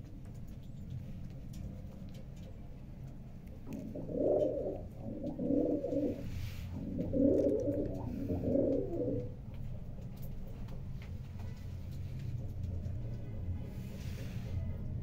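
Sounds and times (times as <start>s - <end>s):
steady low hum: 0.0s - 15.0s
pigeon cooing: 3.7s - 9.4s.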